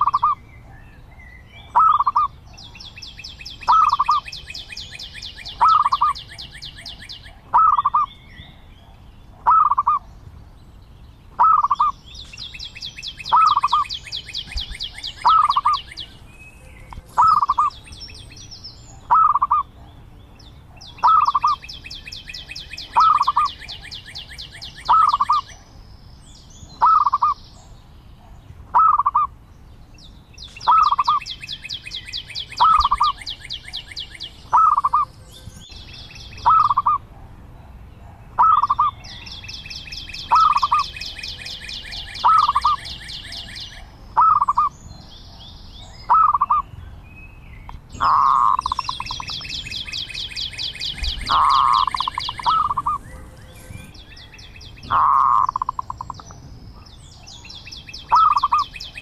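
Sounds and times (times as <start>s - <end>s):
dove cooing: 0.0s - 0.4s, 1.8s - 2.3s, 3.6s - 4.3s, 5.4s - 8.1s, 9.4s - 10.0s, 11.4s - 11.9s, 13.3s - 13.9s, 14.5s - 16.1s, 16.8s - 17.8s, 19.1s - 19.7s, 20.8s - 21.6s, 22.9s - 25.5s, 26.8s - 27.4s, 28.7s - 29.3s, 30.6s - 31.2s, 34.5s - 35.1s, 36.4s - 37.0s, 38.0s - 39.0s, 40.3s - 44.7s, 46.1s - 46.6s, 48.0s - 54.0s, 54.8s - 56.2s, 58.1s - 58.8s.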